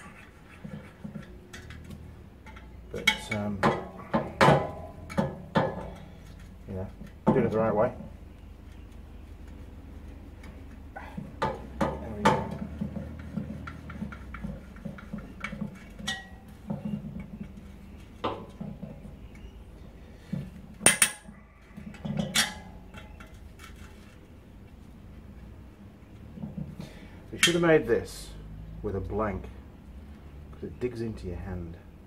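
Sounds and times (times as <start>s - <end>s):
sharp metal knocks: 1.1s - 6.1s, 11.2s - 17.4s, 20.8s - 23.2s.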